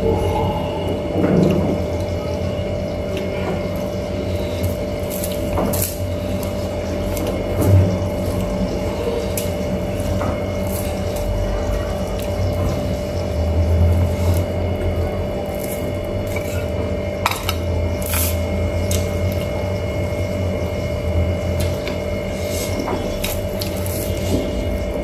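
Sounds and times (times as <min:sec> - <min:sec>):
steady hum: 0:00.0 - 0:25.0
fingers mixing rice on steel plate: 0:15.5 - 0:19.1.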